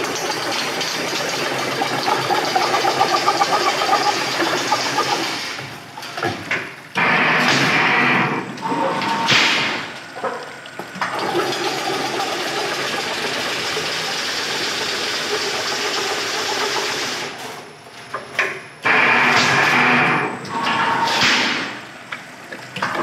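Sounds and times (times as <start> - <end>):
fence weaving machine running: 0.0 - 5.6, 11.1 - 17.4.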